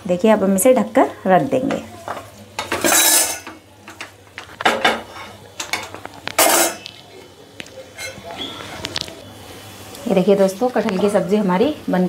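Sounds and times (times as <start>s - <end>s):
cookware clattering: 1.7s - 6.9s, 7.8s - 8.5s.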